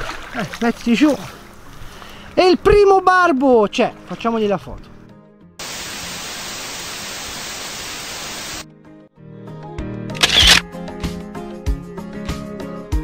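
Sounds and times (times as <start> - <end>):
background music: 0.2 - 6.6, 8.5 - 13.0
transition hiss: 5.6 - 8.7.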